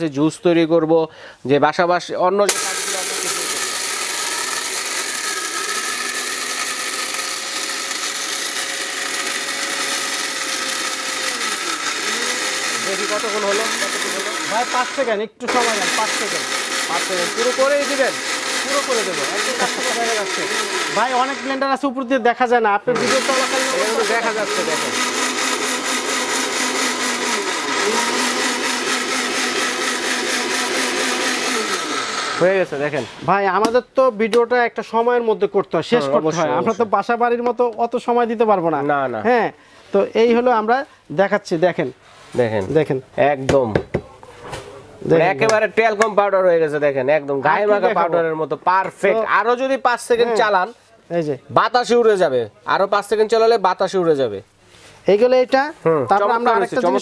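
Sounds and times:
mixer grinder whirring: 0:02.5 - 0:21.9, 0:23.0 - 0:32.9.

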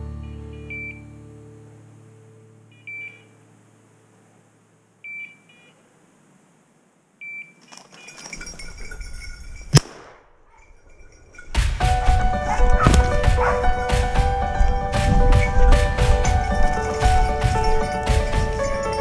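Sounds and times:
background music: 0:00.0 - 0:02.9, 0:11.5 - 0:19.0
two-tone electronic beep: 0:00.5 - 0:01.0, 0:02.7 - 0:03.3, 0:05.0 - 0:05.7, 0:07.2 - 0:07.6
rustle: 0:00.7 - 0:13.9
sharp crack: 0:09.6 - 0:19.0.

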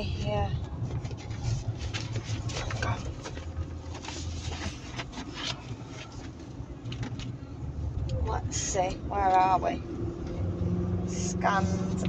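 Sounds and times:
car engine hum: 0:00.0 - 0:12.0
rustling: 0:00.9 - 0:07.1.

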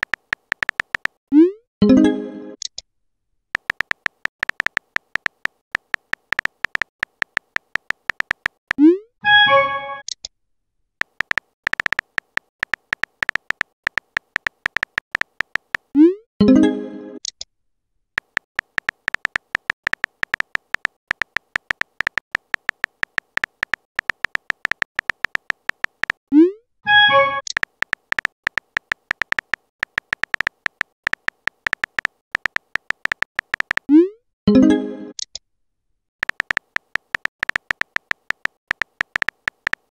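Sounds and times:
phone typing clicks: 0:00.0 - 0:01.2, 0:03.6 - 0:08.8, 0:11.0 - 0:15.9, 0:18.2 - 0:26.2, 0:27.1 - 0:33.9, 0:36.2 - 0:39.9.

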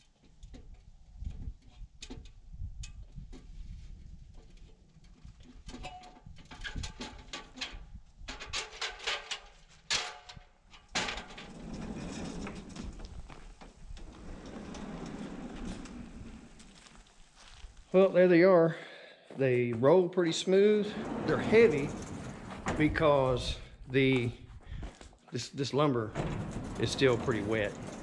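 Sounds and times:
knocks and clicks from ladder: 0:04.4 - 0:16.2, 0:26.1 - 0:28.0
sliding barn doors rolling: 0:11.0 - 0:17.4, 0:20.6 - 0:24.4, 0:26.1 - 0:28.0.

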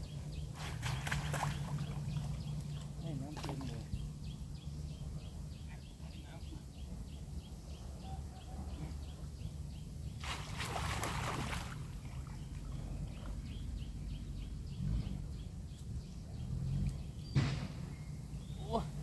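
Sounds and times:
water splashing: 0:00.5 - 0:03.9, 0:10.2 - 0:13.1.

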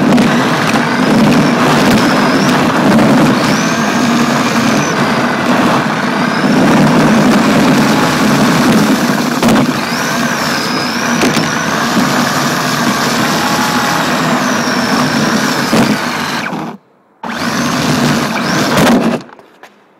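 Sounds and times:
rc car motor whine: 0:00.0 - 0:19.3
driving noise: 0:00.0 - 0:19.5.

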